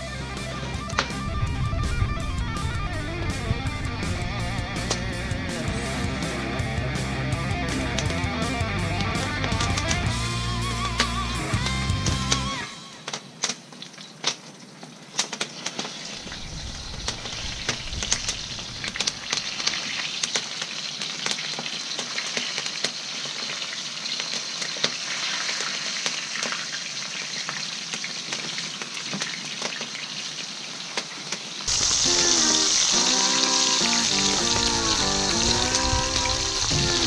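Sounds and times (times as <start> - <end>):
music: 0.0 - 13.3, 31.7 - 37.0
fish sizzling in hot oil: 13.2 - 37.0.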